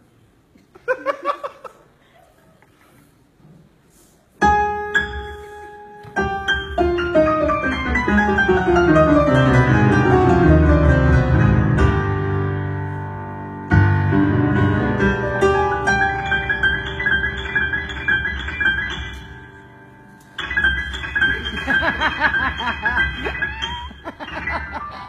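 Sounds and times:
piano solo: 4.4s - 24.9s.

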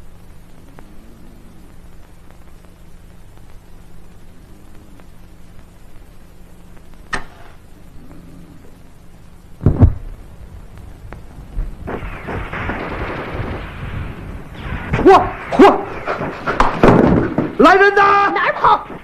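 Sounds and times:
flames burning: 0.0s - 19.0s
heavy thump: 9.6s - 10.2s.

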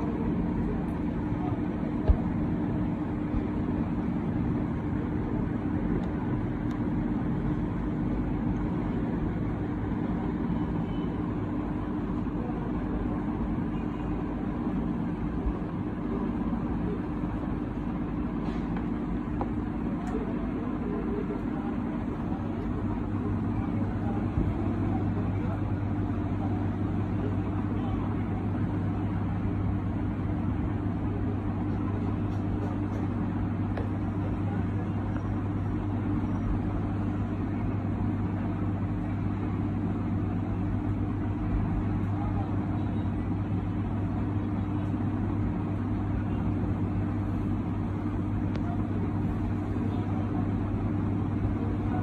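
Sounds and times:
steady mechanical hum: 0.0s - 52.0s.

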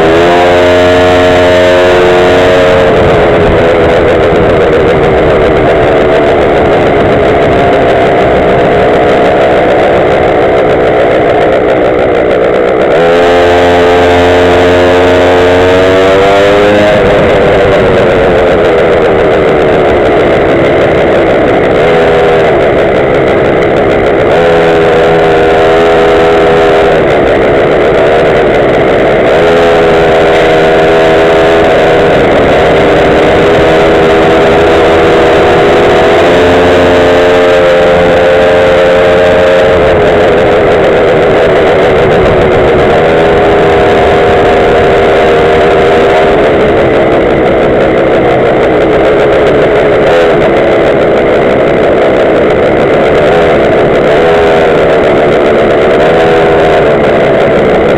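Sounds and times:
scooter engine running: 0.0s - 57.9s.

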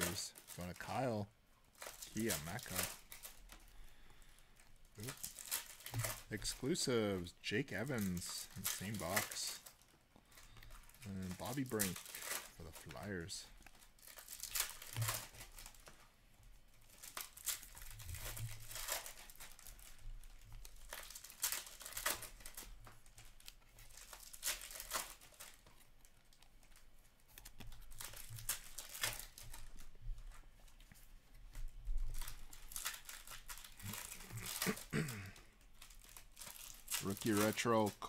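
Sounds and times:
cards flipped through by hand: 1.8s - 3.8s, 7.8s - 16.0s, 20.5s - 34.9s.

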